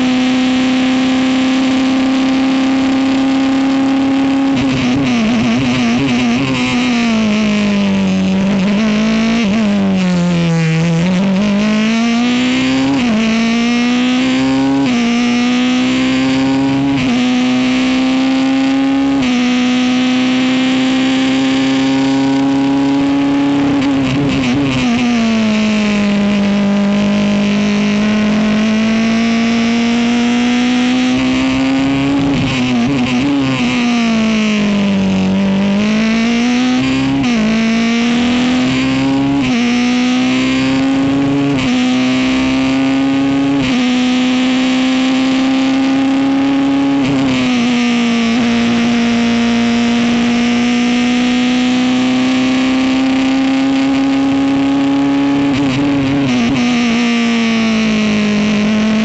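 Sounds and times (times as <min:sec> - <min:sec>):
racing car engine revving: 0:00.0 - 0:59.0.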